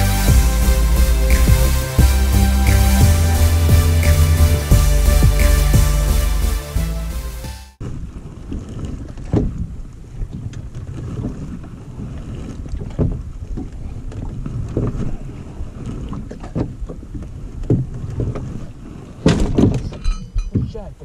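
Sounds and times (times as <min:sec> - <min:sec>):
waves slapping boat hull: 0:07.8 - 0:21.0.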